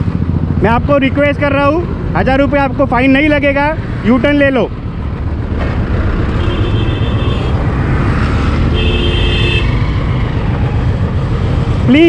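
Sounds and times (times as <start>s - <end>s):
road traffic: 0.0s - 12.0s
vehicle horn blasts: 6.4s - 7.6s, 8.7s - 9.7s.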